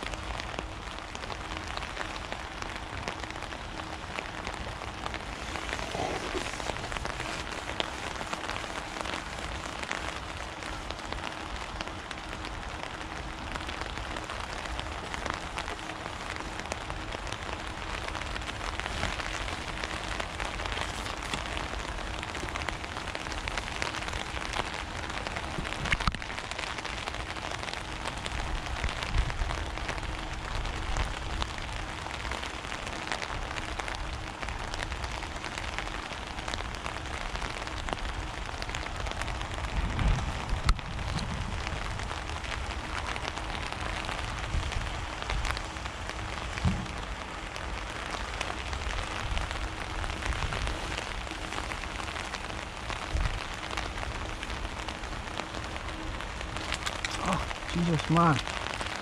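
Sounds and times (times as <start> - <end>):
water pattering: 1.7 - 27.6, 40.6 - 59.0.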